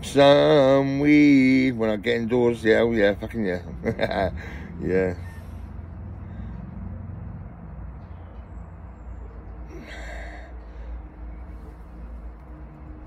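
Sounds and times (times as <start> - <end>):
man breathing heavily and sighing: 4.3 - 7.4, 9.5 - 11.5.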